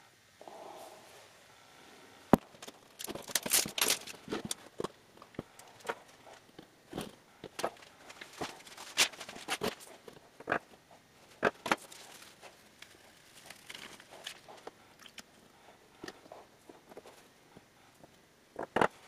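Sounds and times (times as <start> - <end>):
paper rustling and crinkling: 2.5 - 4.7, 5.4 - 10.2, 11.7 - 14.6.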